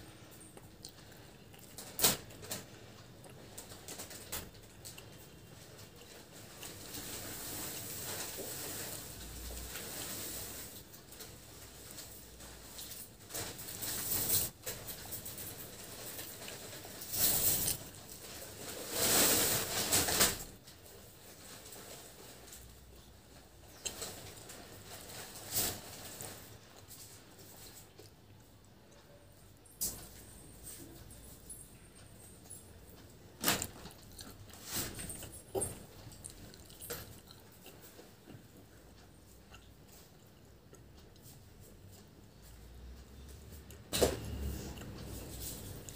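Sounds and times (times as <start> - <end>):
chewing food: 0.0 - 7.1, 26.5 - 29.6, 31.7 - 34.6, 35.7 - 45.9.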